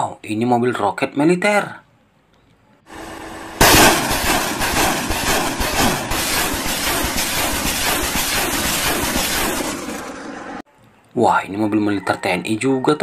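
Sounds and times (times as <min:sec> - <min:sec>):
rockets launching in salvo: 0:03.0 - 0:10.6.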